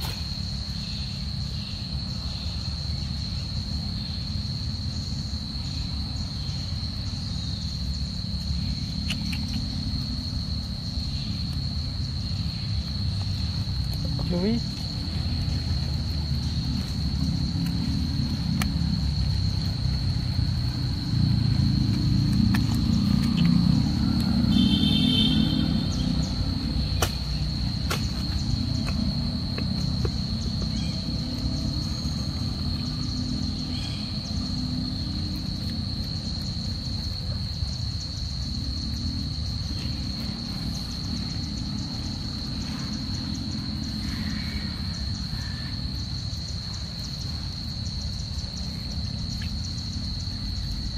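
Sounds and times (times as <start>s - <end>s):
high-pitched insect drone: 0.0s - 50.9s
sharp clicks: 9.0s - 9.7s.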